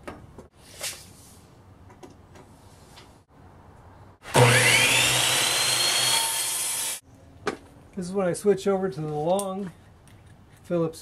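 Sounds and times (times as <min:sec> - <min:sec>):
miter saw cutting wood: 0:04.2 - 0:07.0.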